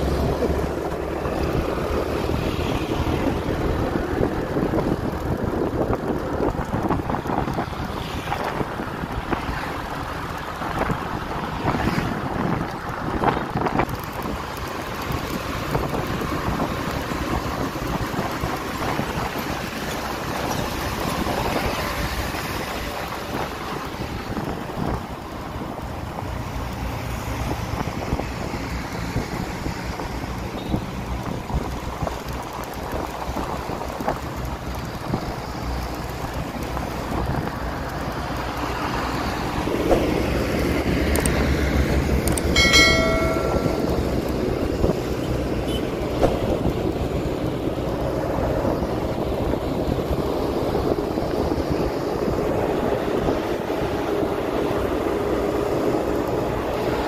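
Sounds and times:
traffic road and engine noise: 0.0s - 57.0s
short high-pitched tone: 42.6s - 44.1s.

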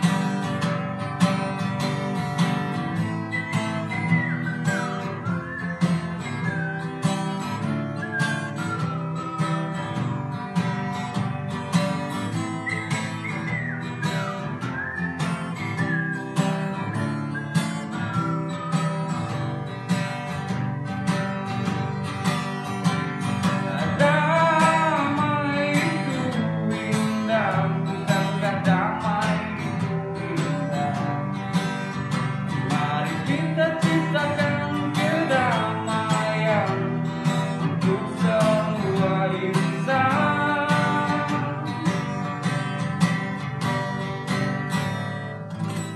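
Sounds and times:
acoustic guitar strumming: 0.0s - 45.9s
man singing: 23.4s - 42.7s.

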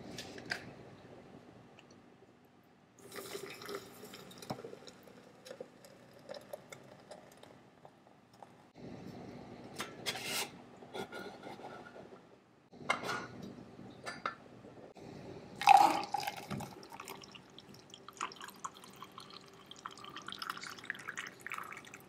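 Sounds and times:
coffee pouring into a mug: 3.0s - 7.6s, 15.6s - 22.0s.

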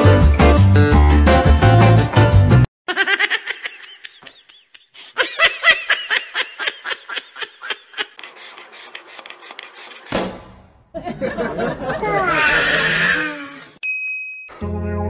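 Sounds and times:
person laughing hard: 2.9s - 9.9s, 11.0s - 13.7s.

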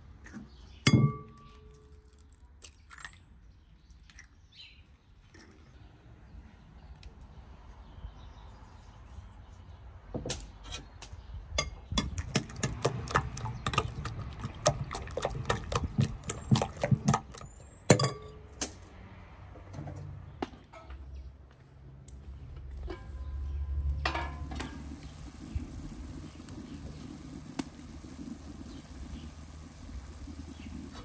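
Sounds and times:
spoon beating eggs in glass bowl: 11.6s - 18.3s.

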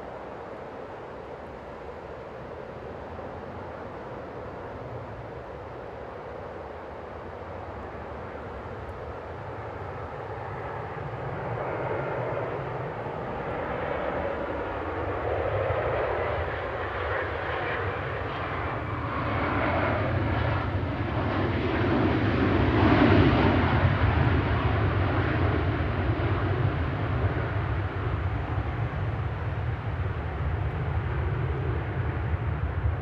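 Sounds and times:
jet engines in reverse thrust: 0.0s - 33.0s.

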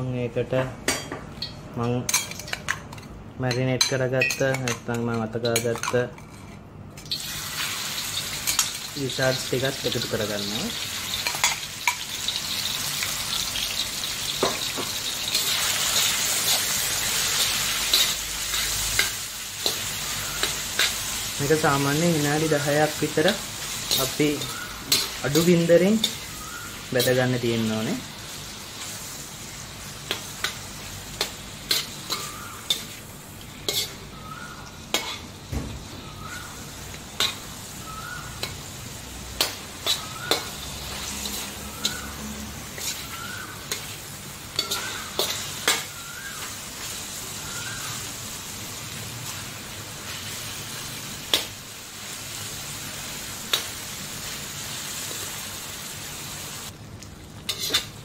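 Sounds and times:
food sizzling in oil: 7.0s - 58.0s
metal spoon scraping wok: 13.4s - 27.8s, 29.9s - 34.2s, 34.9s - 35.3s, 38.4s - 46.0s, 57.5s - 58.0s.

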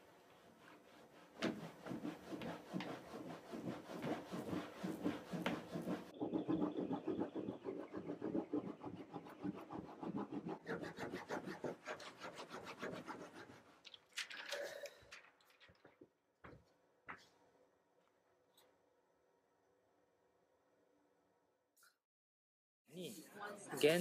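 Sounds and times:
baren rubbing on paper: 0.0s - 13.7s.

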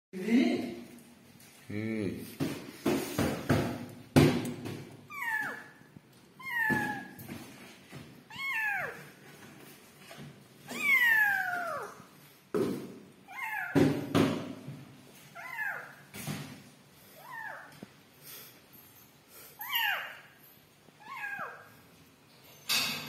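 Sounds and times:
kittens mewing: 5.1s - 5.8s, 6.4s - 7.2s, 10.7s - 12.1s, 19.6s - 20.3s, 21.0s - 21.7s.

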